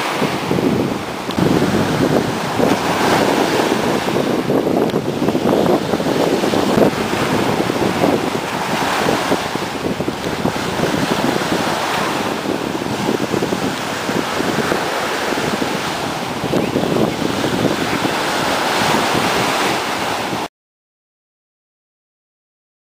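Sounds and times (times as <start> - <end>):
ocean surf breaking: 0.0 - 20.5
wind buffeting microphone: 0.0 - 20.5.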